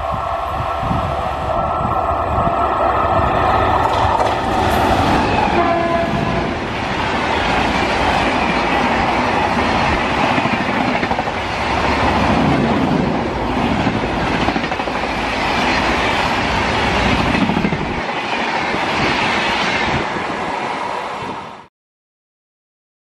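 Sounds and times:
train wheels clickety-clack on rail: 1.7 - 21.7.

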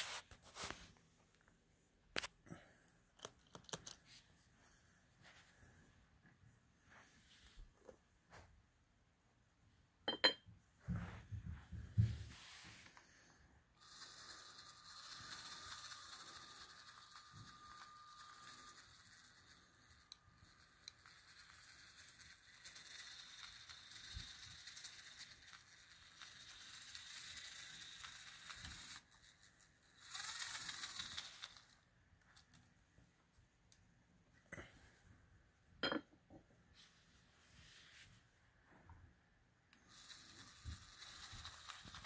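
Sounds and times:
small electric motor whine: 13.7 - 31.8, 39.8 - 42.0.

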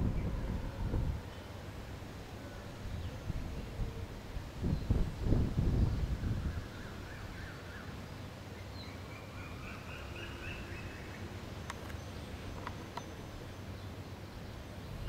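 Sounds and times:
songbird warbling: 8.8 - 13.9.

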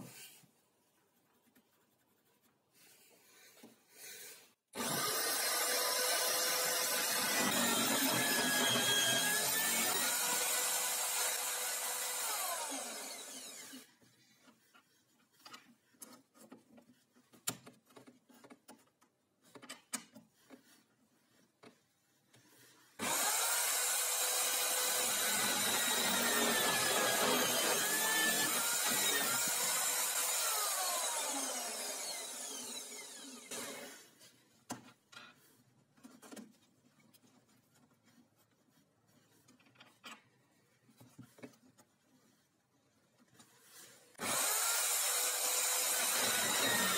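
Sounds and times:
power drill boring into wood: 4.8 - 13.9, 23.0 - 34.1, 44.2 - 46.9.

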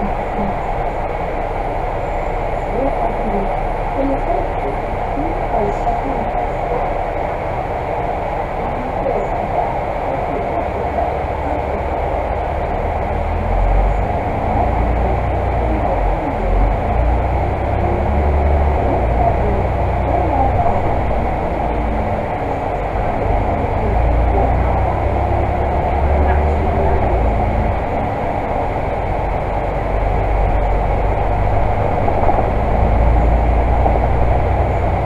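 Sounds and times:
bus diesel engine rumble: 0.0 - 35.0
road noise: 0.0 - 35.0.

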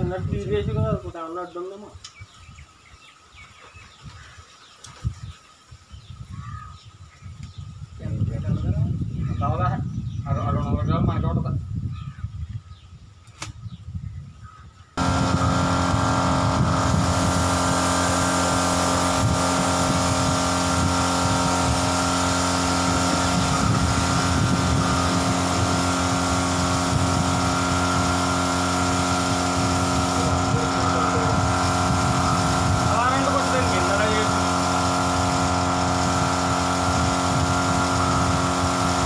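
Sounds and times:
air compressor hissing: 15.0 - 39.0.

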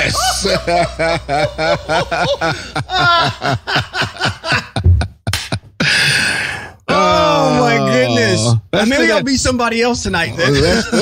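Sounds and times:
man chuckling: 0.0 - 5.8.

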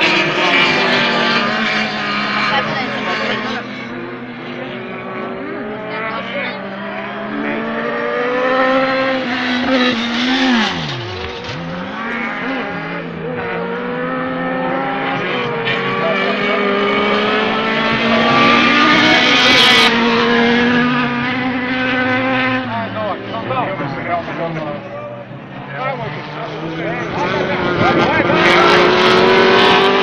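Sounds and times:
racing buggy engines revving: 0.0 - 30.0.

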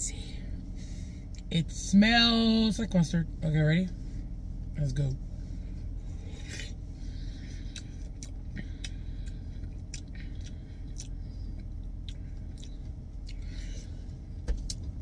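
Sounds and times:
steady low hum: 0.0 - 15.0
person chewing wetly: 7.4 - 14.0.

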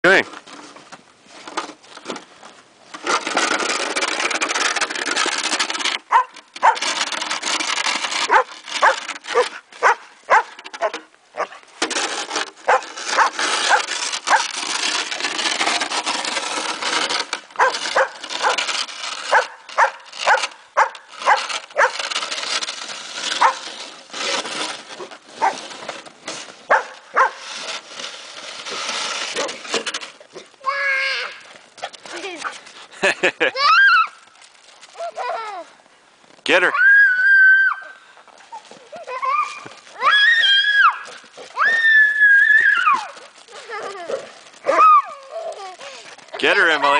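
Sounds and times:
rough scraping hiss: 0.1 - 36.7
dog barking and yipping: 6.1 - 6.9, 8.3 - 11.6, 12.7 - 14.5, 17.6 - 18.6, 19.3 - 22.0, 23.4 - 23.6, 26.7 - 27.4, 43.8 - 45.0.

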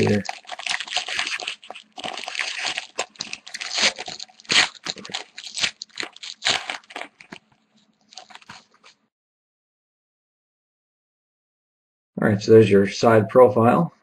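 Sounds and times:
plastic wrapper crinkling: 0.0 - 9.0.

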